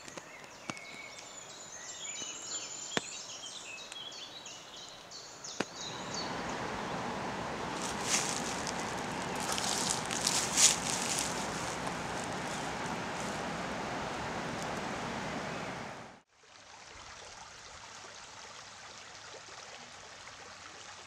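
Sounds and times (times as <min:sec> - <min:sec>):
background hiss: 0:00.0 - 0:16.2
songbird chirping: 0:00.0 - 0:16.2
flowing water rushing: 0:05.7 - 0:17.0
rustling: 0:05.8 - 0:16.2.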